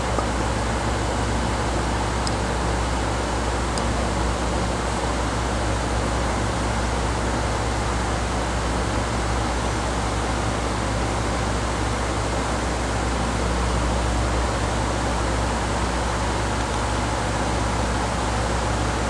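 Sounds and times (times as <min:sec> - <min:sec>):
low steady hum: 0:00.0 - 0:19.0.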